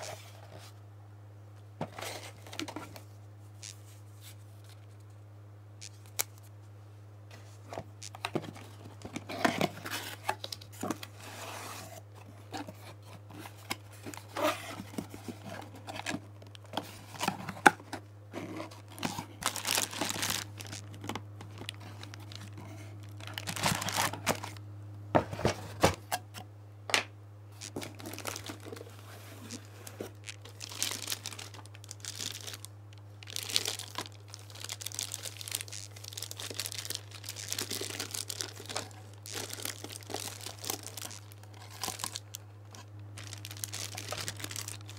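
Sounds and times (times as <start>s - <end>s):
steady low hum: 0.0s - 44.9s
cardboard rustling: 7.4s - 24.6s, 27.6s - 32.7s
plastic bags crinkling: 12.2s - 24.6s, 27.6s - 44.9s.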